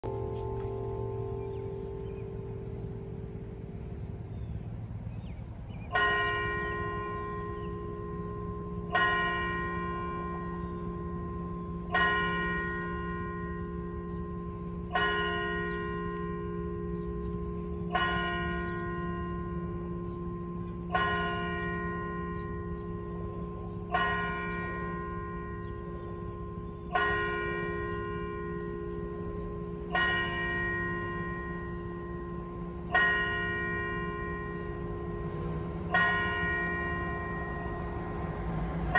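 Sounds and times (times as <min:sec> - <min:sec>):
church bell tolling: 0:00.0 - 0:38.9.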